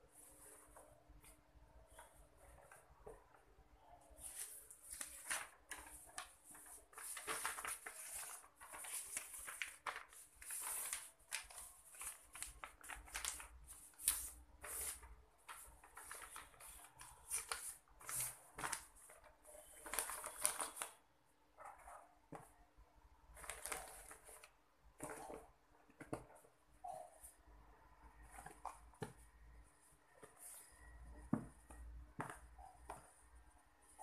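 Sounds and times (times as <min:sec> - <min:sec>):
paper rustling and crinkling: 0:04.2 - 0:21.0, 0:23.3 - 0:26.5.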